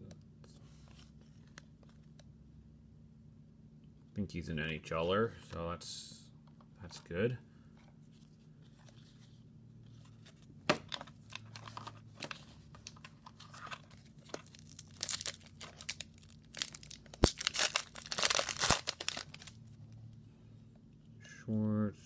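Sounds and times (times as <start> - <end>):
foil wrapper tearing and crinkling: 12.8 - 19.6.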